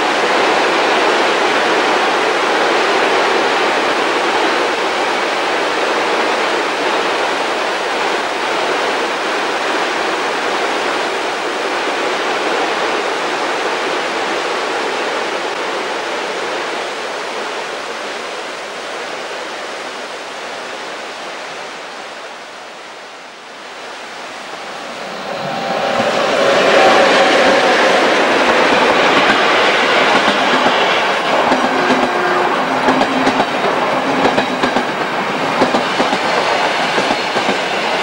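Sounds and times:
freight train rolling: 23.8s - 38.0s.

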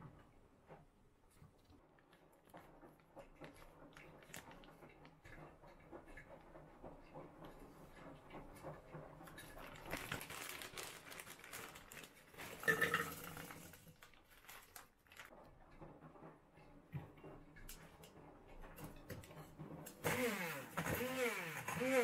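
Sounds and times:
frozen cherries clattering into blender: 9.3s - 15.4s
plastic bag crinkling: 9.3s - 15.4s.

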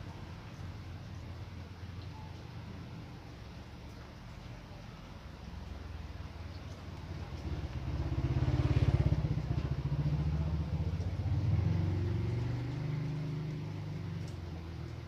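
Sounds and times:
vehicle engine running: 6.0s - 15.0s.

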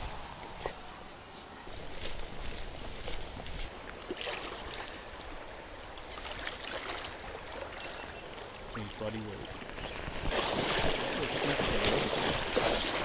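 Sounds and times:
legs splashing through water: 1.7s - 13.0s
river water rushing: 3.7s - 13.0s.

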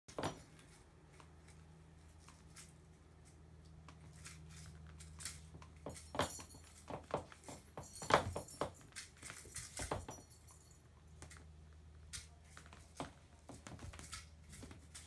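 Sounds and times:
faint low hum: 0.1s - 15.0s
toys rustling and clicking: 0.1s - 15.0s
kitten scrabbling on play mat: 11.2s - 15.0s.

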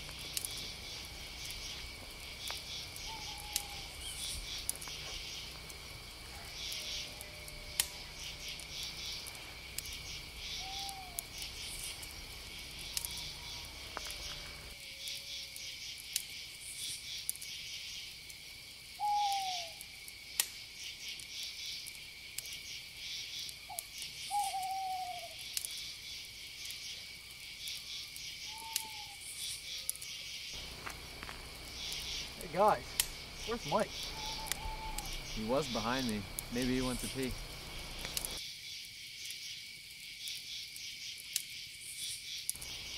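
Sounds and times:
campfire crackles: 0.0s - 42.9s
crickets and insects chirping: 0.0s - 42.9s
owl hoots: 2.7s - 4.6s, 10.4s - 11.9s, 19.0s - 19.8s, 24.2s - 25.4s, 28.4s - 29.5s, 33.4s - 37.2s.

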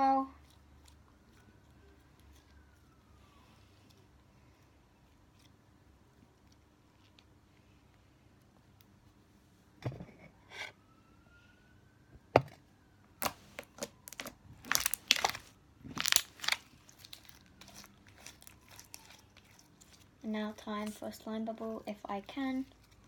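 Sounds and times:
slime squeezed by hand: 13.2s - 20.1s.

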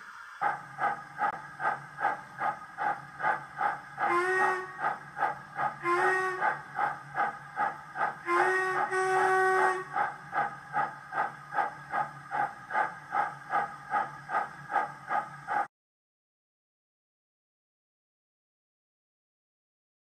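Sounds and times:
steam engine exhaust chuffs: 0.4s - 15.7s
steam whistle blasts: 4.1s - 4.9s, 5.8s - 6.6s, 8.2s - 10.0s.

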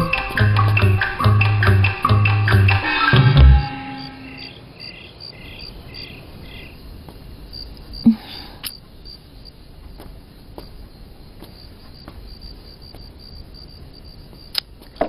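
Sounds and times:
crickets chirping: 0.0s - 15.0s
music cue low hit: 0.5s - 4.3s.

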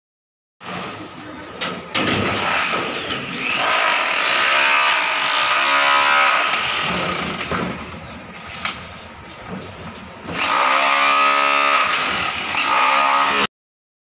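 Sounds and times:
electric drill boring: 3.3s - 7.5s, 10.4s - 13.5s.

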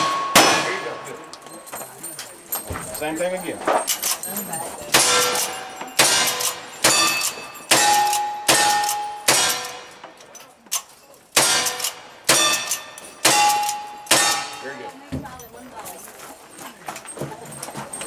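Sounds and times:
steel target clanging: 0.0s - 1.7s, 4.9s - 10.2s, 11.4s - 14.9s.

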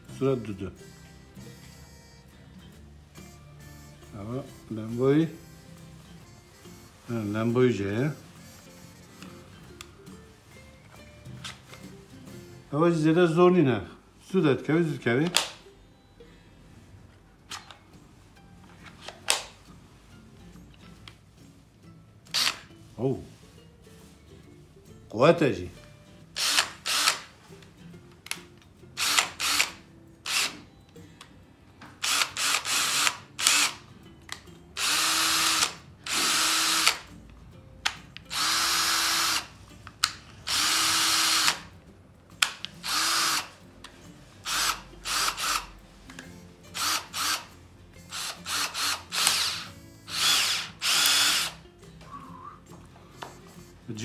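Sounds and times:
drill motor whine: 34.8s - 37.0s, 38.3s - 39.4s, 40.5s - 41.6s, 42.8s - 43.4s, 48.1s - 51.6s.

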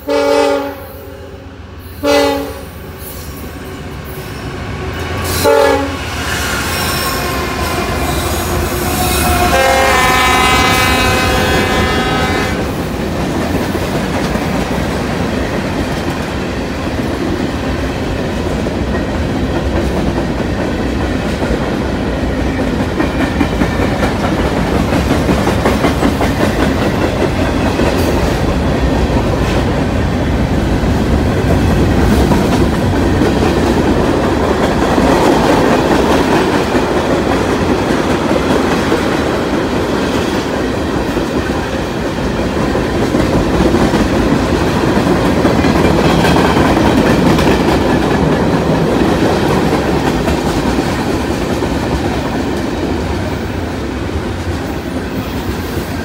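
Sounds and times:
train wheels rumbling on rail: 0.0s - 56.0s
clickety-clack over rail joints: 11.7s - 53.4s.

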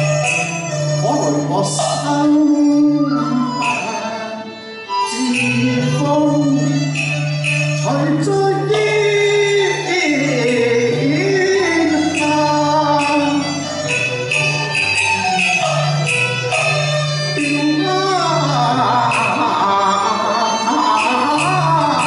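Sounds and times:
tapped beat: 0.0s - 1.0s, 3.6s - 4.2s, 5.2s - 6.1s, 6.8s - 8.0s, 10.4s - 17.7s, 19.1s - 19.6s, 20.8s - 22.0s
small live ensemble: 0.0s - 22.0s
man singing opera: 1.0s - 7.0s, 7.8s - 13.6s, 17.4s - 22.0s.

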